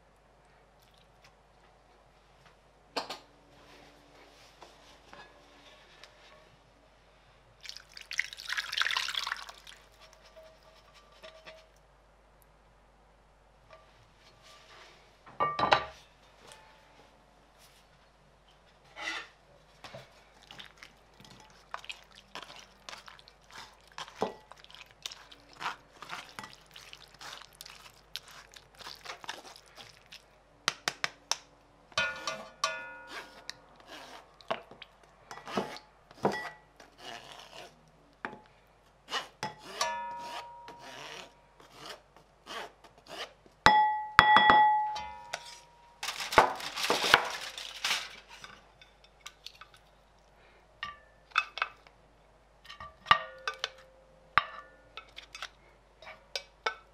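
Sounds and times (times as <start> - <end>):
dishes clinking: 15.4 - 16.8, 32.0 - 33.4, 39.8 - 40.8, 43.7 - 45.9.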